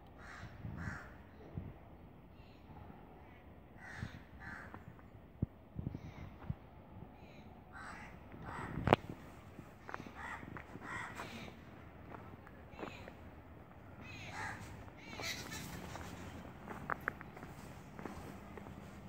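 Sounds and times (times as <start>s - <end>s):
crows cawing: 0.2s - 1.2s, 3.8s - 4.9s, 7.7s - 9.0s, 9.8s - 12.2s, 14.0s - 16.4s.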